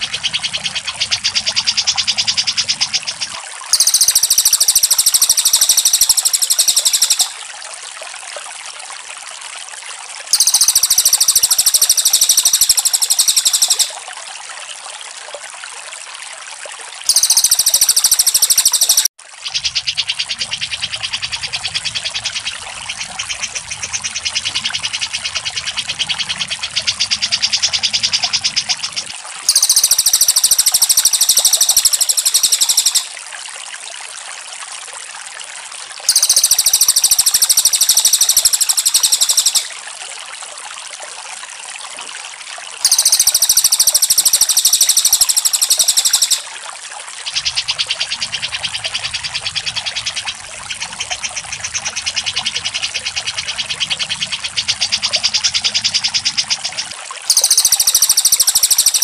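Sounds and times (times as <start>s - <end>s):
bird chattering high notes: 3.7s - 7.4s, 10.3s - 14.0s, 17.1s - 19.1s, 29.5s - 33.1s, 36.1s - 39.7s, 42.8s - 46.4s, 57.3s - 59.0s
high buzzy bird trill: 3.7s - 7.4s, 10.3s - 14.0s, 17.1s - 19.1s, 29.5s - 33.1s, 36.1s - 39.7s, 42.8s - 46.5s, 57.3s - 59.0s.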